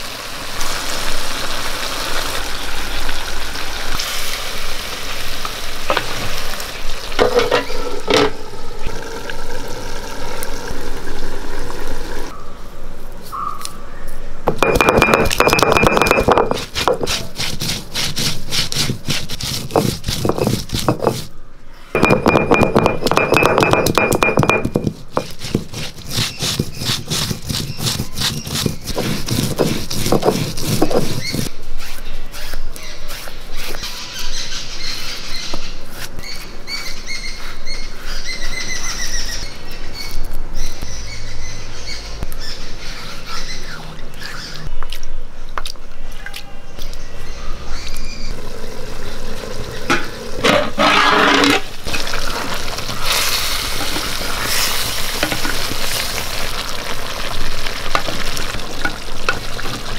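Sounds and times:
birds chirping: 0:12.3 - 0:16.5, 0:33.7 - 0:45.4, 0:46.0 - 0:50.4
stone grinding spices: 0:14.5 - 0:21.3, 0:22.0 - 0:31.5.

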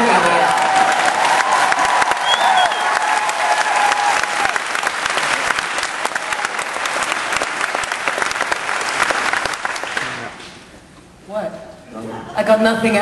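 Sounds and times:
people cheering: 0:00.0 - 0:10.3
audience applauding: 0:00.0 - 0:10.5.

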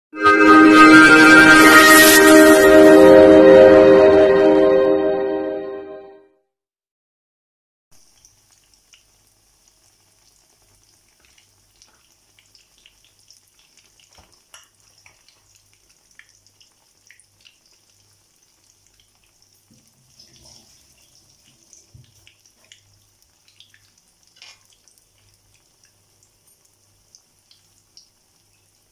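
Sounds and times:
oil sizzling with pops: 0:07.9 - 0:28.9.

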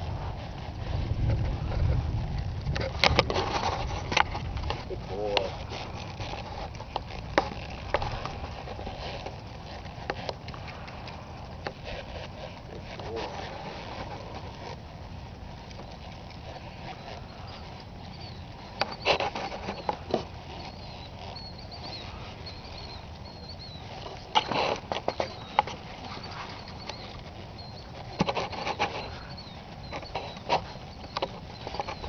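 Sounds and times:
hooves and tack knocking: 0:00.0 - 0:32.0
low outdoor rumble: 0:00.0 - 0:32.0
faint bird chirps: 0:19.7 - 0:32.0.

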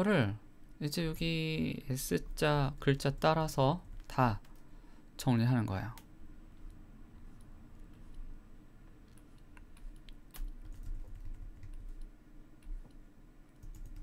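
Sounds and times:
faint low hum: 0:00.0 - 0:14.0
computer keys and mouse clicks: 0:05.9 - 0:13.0, 0:13.6 - 0:14.0.

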